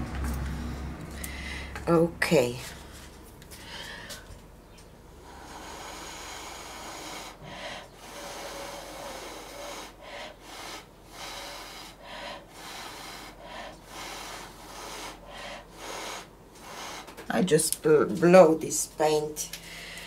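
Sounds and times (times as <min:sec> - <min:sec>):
person blowing air: 0:05.2 - 0:17.2.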